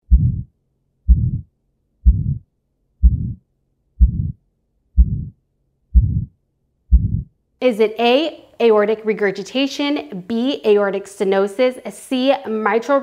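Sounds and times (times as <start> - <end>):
heartbeat with murmur: 0.0 - 0.5, 1.1 - 3.4, 4.0 - 4.4, 5.0 - 7.3.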